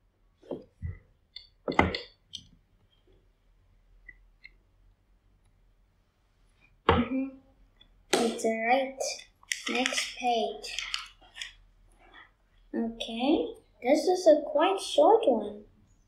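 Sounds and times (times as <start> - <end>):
plastic bricks clicking: 9.4 - 11.5.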